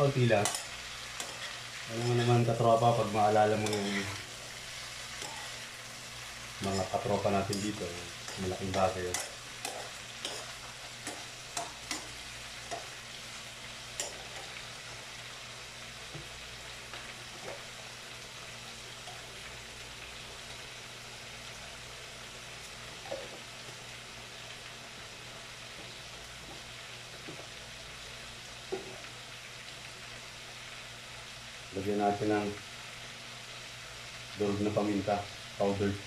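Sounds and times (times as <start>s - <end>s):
vegetables sizzling in a frying pan: 0.0s - 36.0s
spatula scraping and tapping pan: 0.4s - 2.4s, 3.5s - 4.2s, 5.2s - 5.6s, 7.5s - 12.9s.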